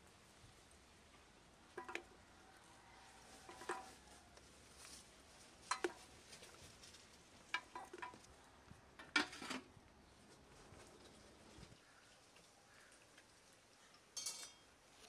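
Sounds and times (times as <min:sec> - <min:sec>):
metal pipe clinking: 0:14.2 - 0:14.7.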